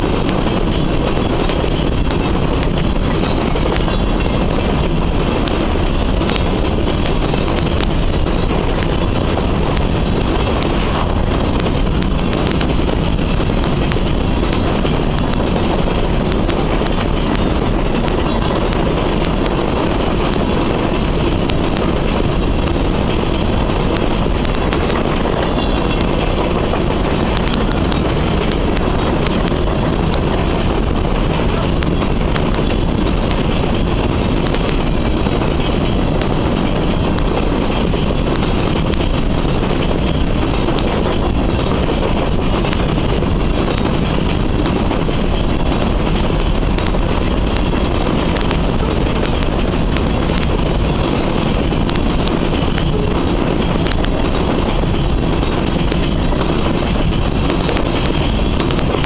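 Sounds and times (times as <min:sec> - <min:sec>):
train wheels rumbling on rail: 0:00.0 - 0:59.0
sharp clicks: 0:11.5 - 0:15.7, 0:16.3 - 0:19.6, 0:22.6 - 0:26.3, 0:27.3 - 0:30.2, 0:34.3 - 0:34.8, 0:51.2 - 0:59.0.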